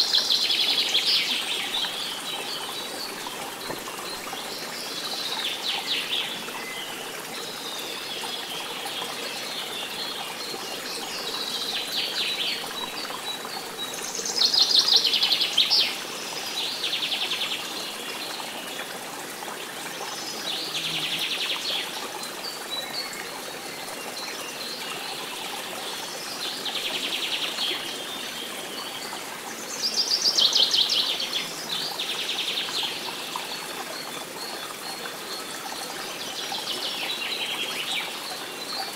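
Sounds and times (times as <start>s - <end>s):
flowing water rushing: 0.0s - 38.9s.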